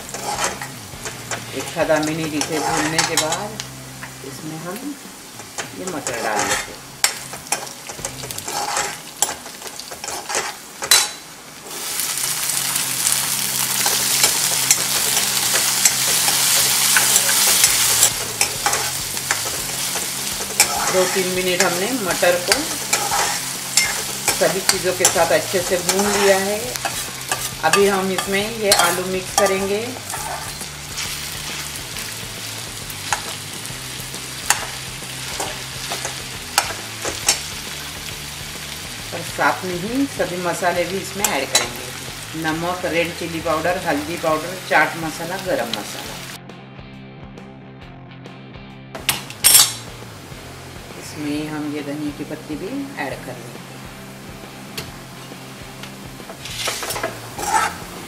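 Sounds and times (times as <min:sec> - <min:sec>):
metal spatula scraping pan: 0:00.0 - 0:03.6, 0:05.4 - 0:12.1, 0:13.0 - 0:31.8, 0:34.4 - 0:37.5, 0:56.3 - 0:58.0
spices frying in oil: 0:00.0 - 0:46.4, 0:49.0 - 0:58.0
spoon clinking against pan: 0:22.4 - 0:25.2.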